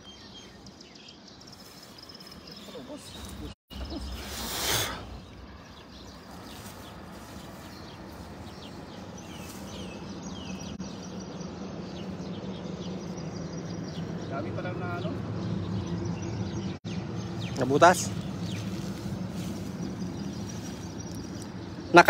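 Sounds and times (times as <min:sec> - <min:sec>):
bird chirps: 0:00.0 - 0:22.0
net and grass rustling: 0:01.5 - 0:11.0, 0:18.1 - 0:21.8.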